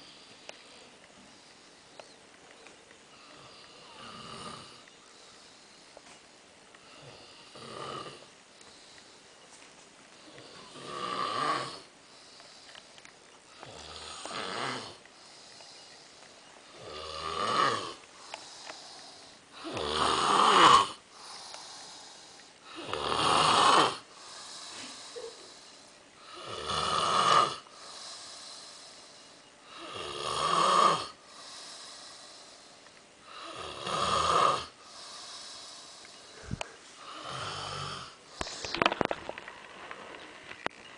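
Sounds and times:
man snoring loudly: 0:03.2 - 0:04.8, 0:06.9 - 0:08.3, 0:10.3 - 0:11.9, 0:13.6 - 0:15.0, 0:16.7 - 0:25.2, 0:26.2 - 0:29.1, 0:29.7 - 0:32.6, 0:33.2 - 0:36.0, 0:37.0 - 0:38.2.

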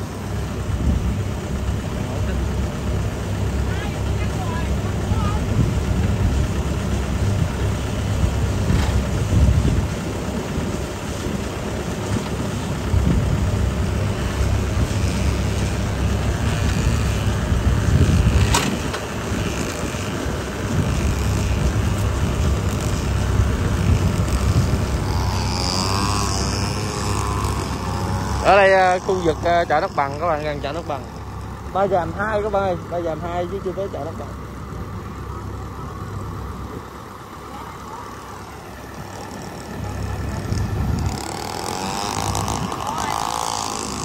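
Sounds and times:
diesel engine running: 0:00.0 - 0:44.0
wind on microphone: 0:04.8 - 0:30.1, 0:39.7 - 0:44.0.

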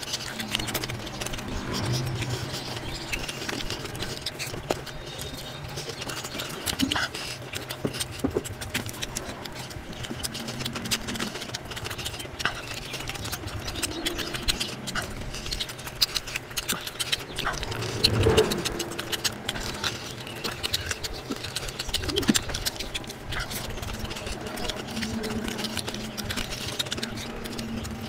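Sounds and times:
fingers squishing through food: 0:00.0 - 0:28.0
lip smacking: 0:00.0 - 0:28.0
sped-up wet chewing: 0:00.0 - 0:28.0
steady low hum: 0:00.0 - 0:28.0.

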